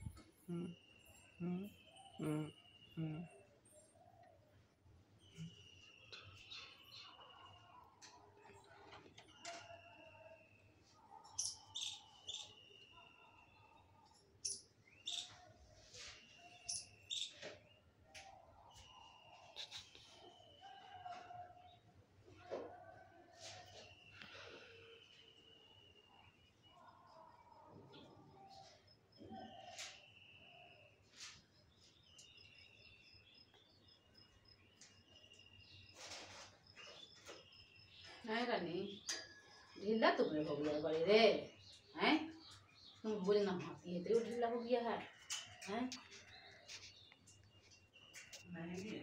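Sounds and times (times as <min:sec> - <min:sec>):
insects chirping: 0:09.3 - 0:15.3.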